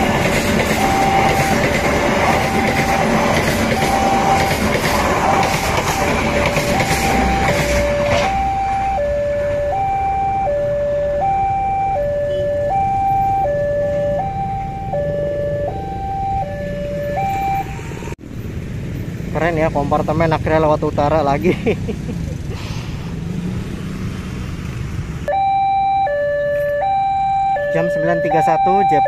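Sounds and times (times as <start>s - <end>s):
train wheels clattering: 0.0s - 8.5s
level crossing alarm two-tone: 0.8s - 17.7s, 25.3s - 29.0s.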